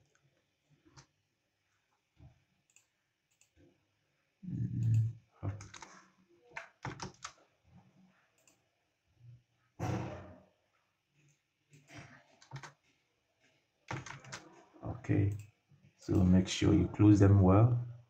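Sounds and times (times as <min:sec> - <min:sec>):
keyboard keystrokes: 0:04.8 - 0:05.9, 0:06.6 - 0:07.4, 0:12.4 - 0:12.8, 0:13.9 - 0:14.4.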